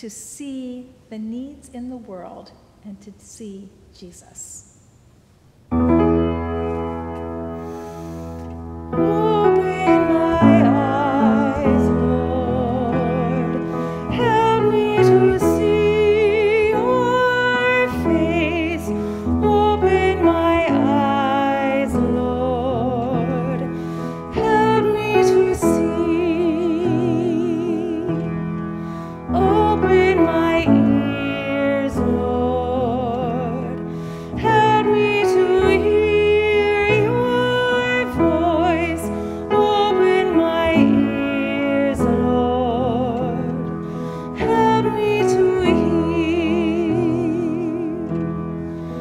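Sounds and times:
piano chords: 0:05.5 - 0:49.0
woman singing operatically: 0:09.0 - 0:28.3, 0:29.3 - 0:33.8, 0:34.4 - 0:43.6, 0:44.4 - 0:48.1.

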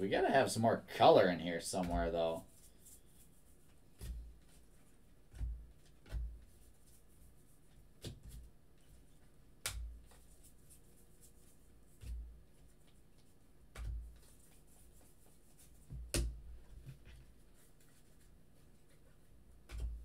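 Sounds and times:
cards flicking and knocking: 0:05.3 - 0:07.0, 0:08.0 - 0:09.0, 0:09.6 - 0:10.5, 0:13.7 - 0:15.0, 0:15.6 - 0:17.2, 0:19.6 - 0:20.0.

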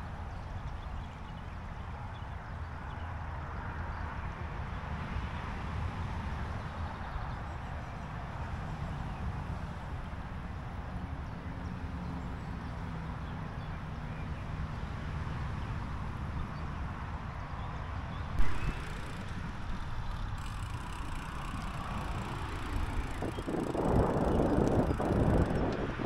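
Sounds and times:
bicycle rolling rumble: 0:00.0 - 0:26.0
wind on microphone: 0:18.4 - 0:26.0.

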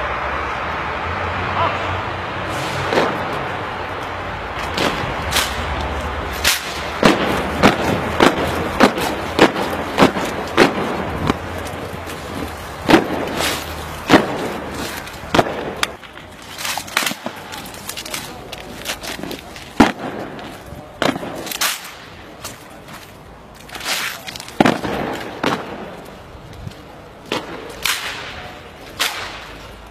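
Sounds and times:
boots marching on pavement: 0:03.0 - 0:21.6.

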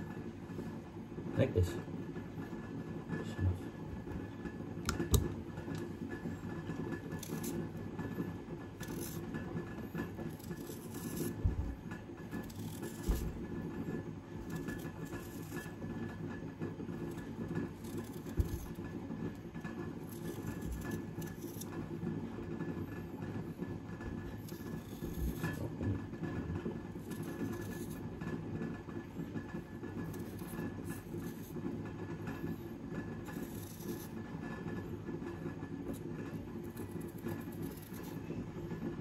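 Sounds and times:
low mechanical hum: 0:00.0 - 0:39.0
knife on cutting board: 0:17.8 - 0:18.8.

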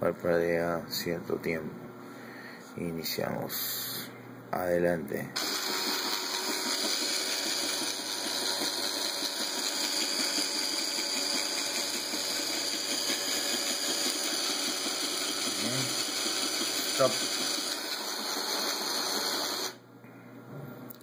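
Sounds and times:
small gear motors whirring: 0:05.4 - 0:19.8.

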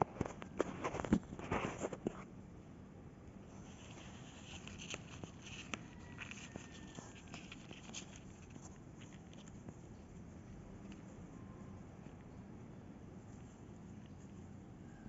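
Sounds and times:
scratching and rustling on cardboard: 0:00.0 - 0:02.3, 0:03.5 - 0:11.3.

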